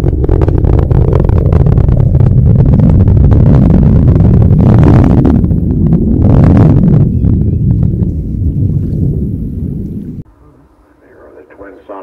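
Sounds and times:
rocket engine rumble with crackling: 0:00.0 - 0:12.0.

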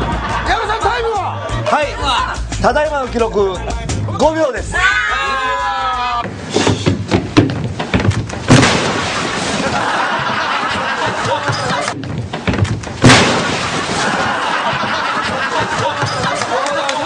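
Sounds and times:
heavy thuds and crashes: 0:06.2 - 0:16.2.

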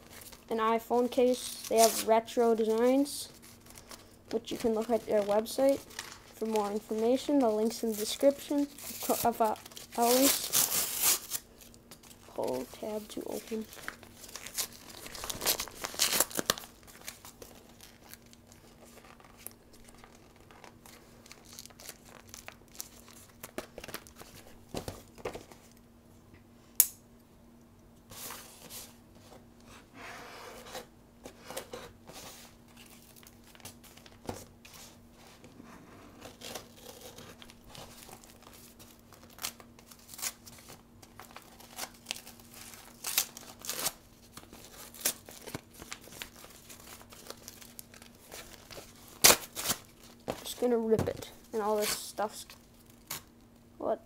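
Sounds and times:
faint steady hum: 0:00.0 - 0:54.0
paper crinkling and rustling: 0:01.2 - 0:25.8, 0:30.7 - 0:53.3
paper envelope tearing: 0:04.5 - 0:12.1, 0:36.2 - 0:50.1.

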